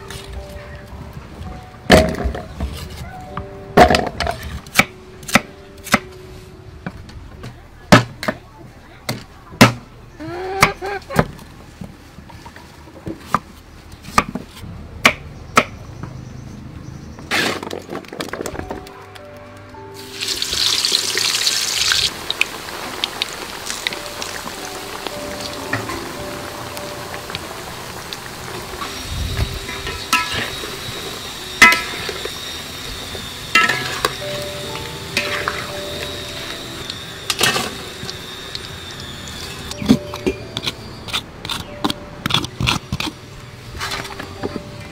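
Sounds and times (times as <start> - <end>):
food bubbling in a wok: 20.2 - 25.6.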